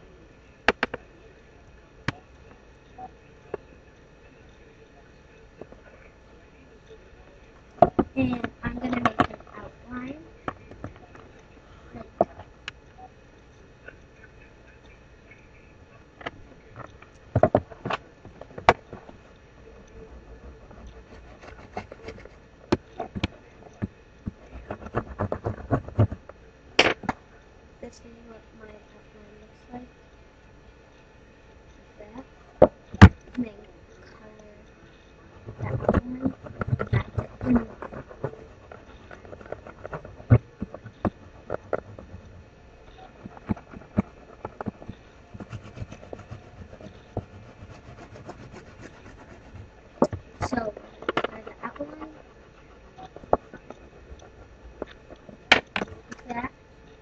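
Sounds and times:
pen drawing on cardboard: 20.1s - 22.4s, 23.0s - 26.2s, 35.4s - 55.4s.

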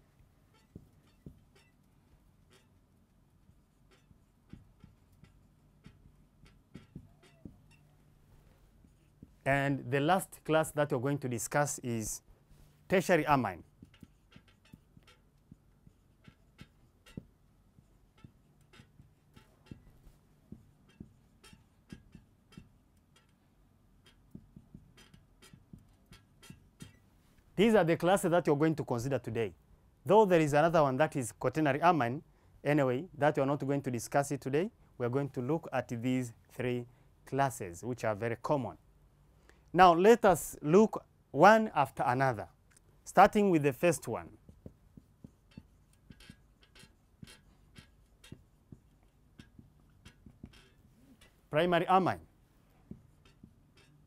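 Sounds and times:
marker ticking on whiteboard: 0.5s - 8.1s, 13.0s - 27.7s, 41.9s - 54.0s.

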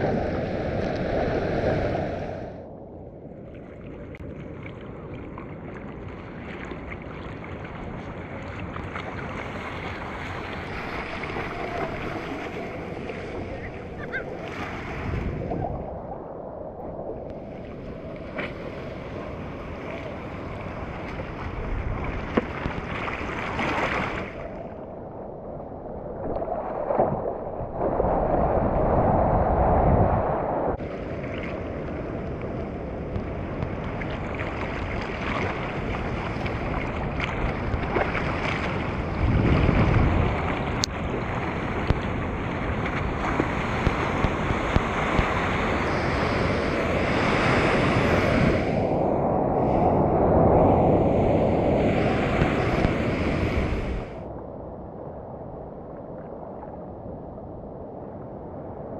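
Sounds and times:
wind noise on microphone: 0.0s - 4.2s, 7.6s - 58.9s
rush of water: 0.0s - 54.4s
water sloshing and splashing: 3.4s - 15.9s, 17.3s - 25.1s, 33.1s - 45.5s.

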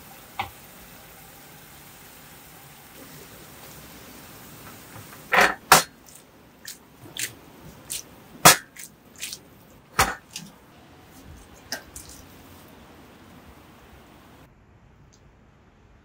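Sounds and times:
faint sizzle: 0.0s - 14.5s
spatula scraping and knocking wok: 4.6s - 9.4s, 10.0s - 12.7s.

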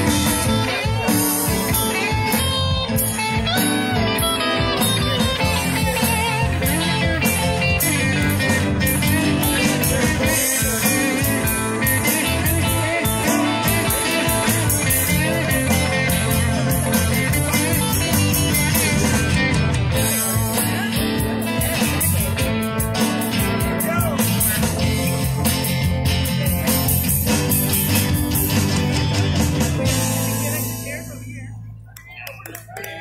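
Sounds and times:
bass: 0.0s - 33.0s
drums: 0.0s - 33.0s
guitar: 0.0s - 33.0s.

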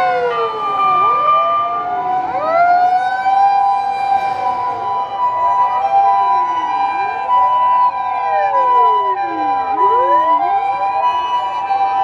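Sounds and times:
two-tone ambulance siren: 0.0s - 12.0s
wailing sirens: 0.0s - 12.0s.

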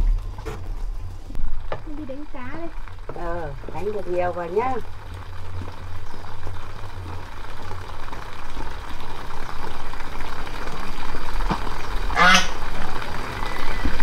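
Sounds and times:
duck quacking: 12.2s - 12.6s.

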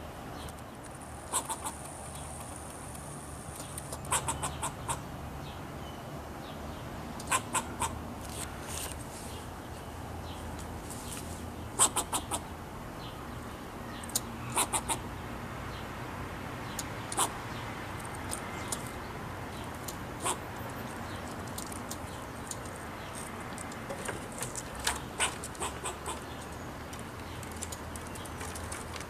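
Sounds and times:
squirrel alarm barks: 1.2s - 1.9s, 3.6s - 5.0s, 7.2s - 8.0s, 11.7s - 12.5s, 14.0s - 15.1s, 17.0s - 17.5s, 19.6s - 21.2s, 24.8s - 26.6s.

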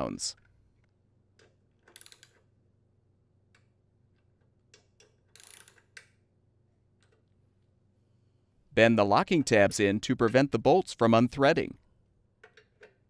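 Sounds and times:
torque wrench ratcheting clicks: 1.8s - 2.4s, 4.8s - 6.1s.

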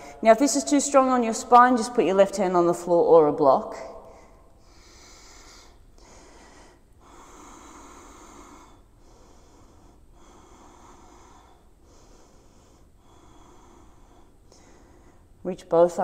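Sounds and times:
person breathing in and out: 0.0s - 0.2s, 4.0s - 15.4s.

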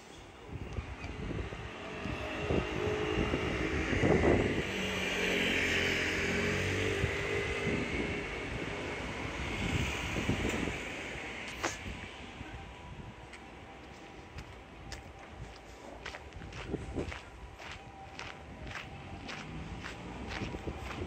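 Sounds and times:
engine drone passing: 0.8s - 13.1s.

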